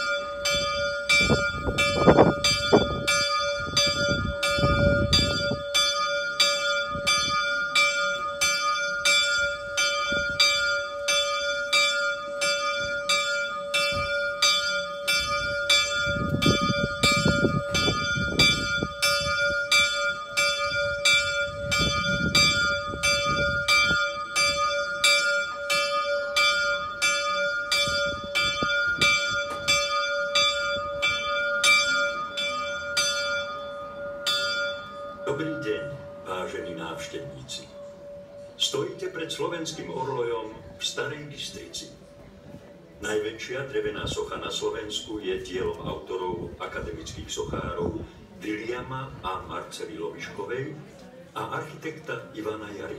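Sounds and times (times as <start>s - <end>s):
tower bell struck rapidly: 0.0s - 36.2s.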